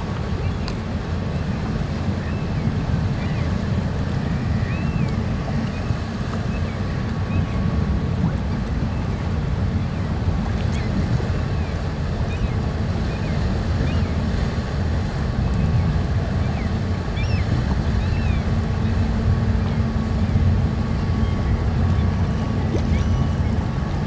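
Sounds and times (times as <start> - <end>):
faint hum: 0.0 - 24.0
ferry engines low rumble: 0.0 - 24.0.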